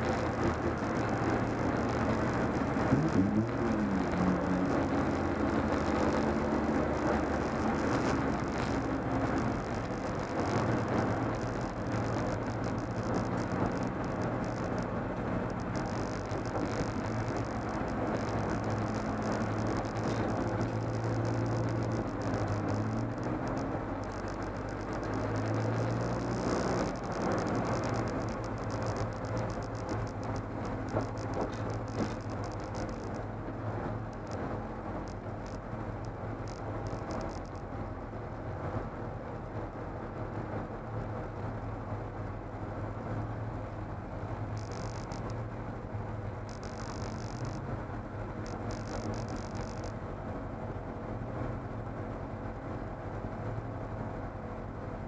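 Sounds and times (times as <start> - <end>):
race car engine running: 0.0 - 38.5, 43.3 - 50.5
road and wind noise: 0.0 - 55.0.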